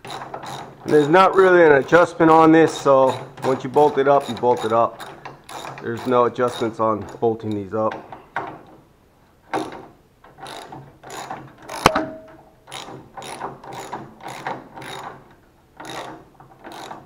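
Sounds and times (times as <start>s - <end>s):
sharp metallic click: 11.8s - 12.5s
ratchet wrench clicking: 15.8s - 17.0s.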